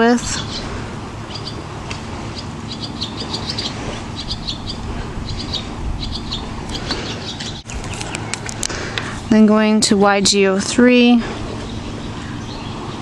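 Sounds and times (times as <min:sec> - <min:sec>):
small bird chirping: 0:01.3 - 0:01.6, 0:02.3 - 0:08.5, 0:11.4 - 0:13.0.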